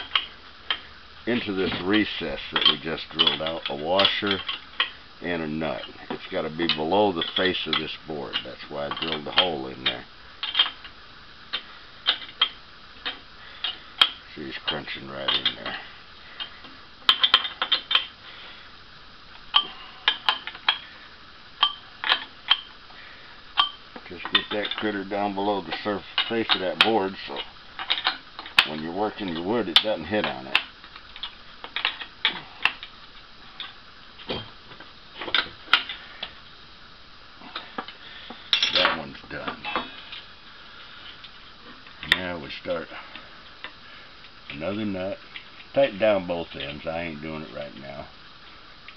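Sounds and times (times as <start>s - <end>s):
small metal hardware clinking: 1.6s - 5.0s, 16.4s - 18.1s, 21.6s - 22.7s, 23.6s - 32.9s, 37.6s - 40.2s.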